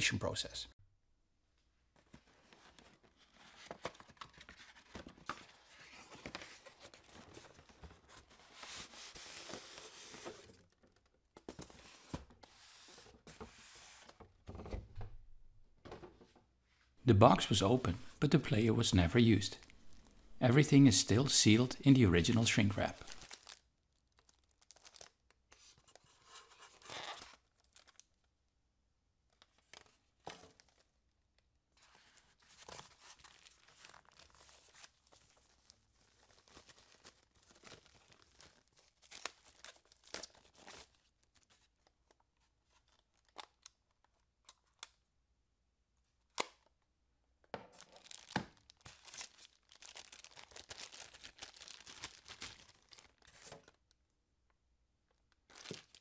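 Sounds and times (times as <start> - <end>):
plastic bags and styrofoam rustling: 22.2 - 25.1, 31.9 - 41.5, 47.7 - 53.8, 55.5 - 56.0.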